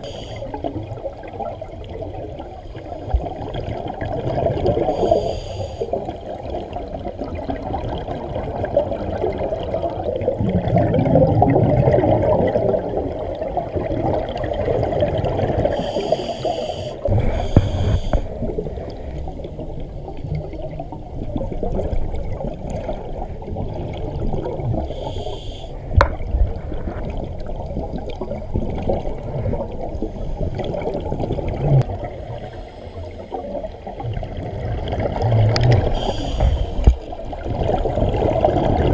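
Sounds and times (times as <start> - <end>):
underwater regulator bubbling: 6.7 - 32.2, 33.0 - 38.9
hissing breaths: 15.7 - 19.2, 24.9 - 25.9, 35.9 - 37.0.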